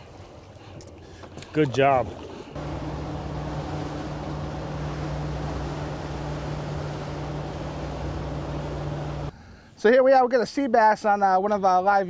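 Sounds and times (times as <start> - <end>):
wind and water noise: 0.0 - 9.3
outboard motor running: 2.5 - 9.3.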